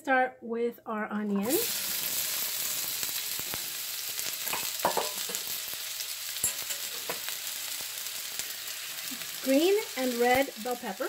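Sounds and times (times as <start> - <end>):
onions sizzling in oil: 1.3 - 11.0.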